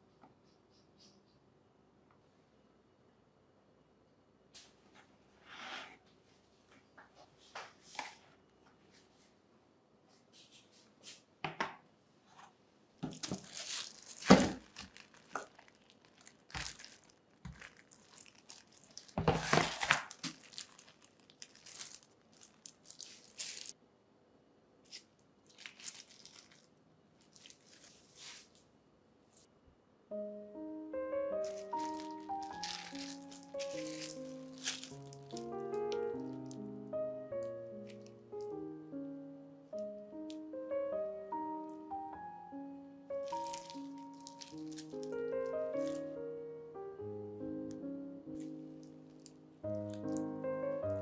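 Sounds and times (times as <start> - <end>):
thin plastic crinkling: 13.0 - 23.8, 24.8 - 28.7, 31.4 - 36.7, 37.4 - 38.5, 43.1 - 46.2, 48.4 - 50.3.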